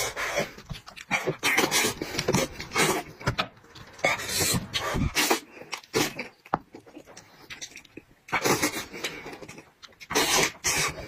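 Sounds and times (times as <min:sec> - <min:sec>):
wet chewing: 0:00.0 - 0:11.0
sucking mouth sounds: 0:04.0 - 0:11.0.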